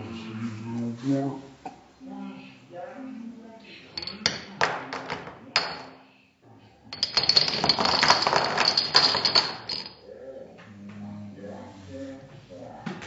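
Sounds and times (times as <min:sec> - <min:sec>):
dominoes clattering on tile: 0:04.0 - 0:05.9, 0:06.9 - 0:10.0.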